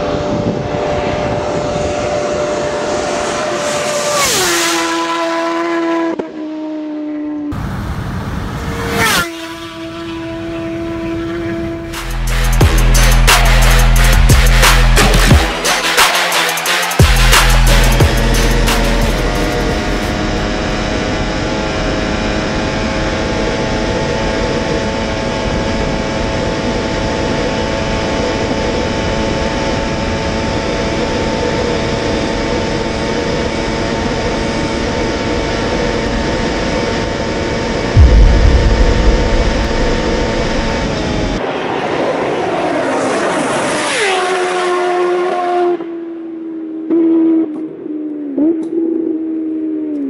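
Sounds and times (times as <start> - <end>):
wind rush: 0.0 - 2.7, 38.0 - 41.4
motorcycle engine at high revs: 0.0 - 11.9
motorcycle engine pitch gliding down: 37.8 - 41.4
wind gust buffeting: 38.0 - 41.4.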